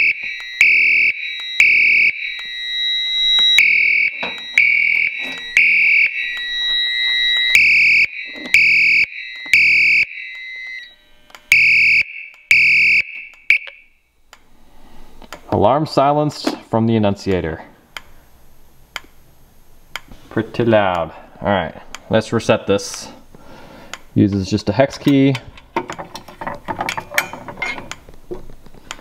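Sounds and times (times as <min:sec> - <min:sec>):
thin steady high beep: 0:00.0 - 0:14.0
fire alarm horn blasts: 0:00.0 - 0:14.1.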